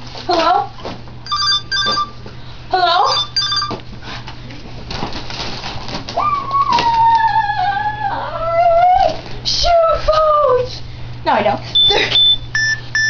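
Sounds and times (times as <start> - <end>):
rustling and handling noise: 3.4 - 7.4.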